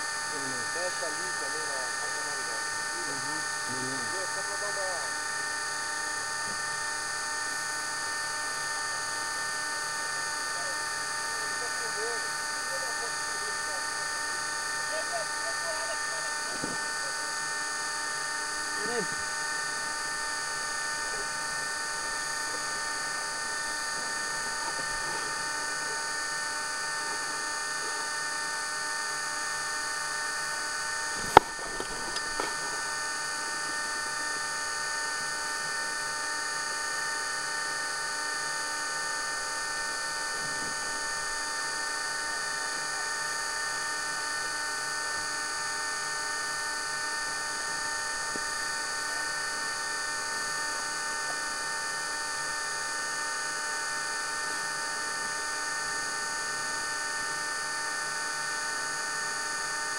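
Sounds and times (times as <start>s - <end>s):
camera electrical whine: 0.0s - 59.9s.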